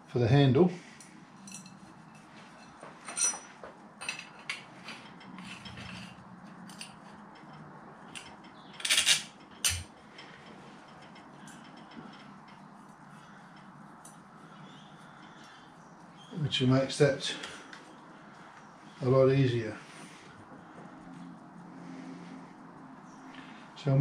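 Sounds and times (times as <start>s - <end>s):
metal clicks and clinks: 1.4s - 12.8s.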